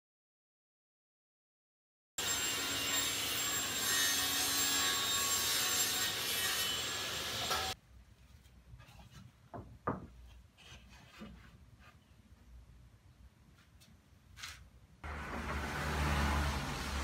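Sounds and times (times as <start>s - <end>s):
panel saw cutting wood: 2.2s - 7.8s, 15.0s - 17.0s
wooden boards knocking: 9.5s - 10.2s.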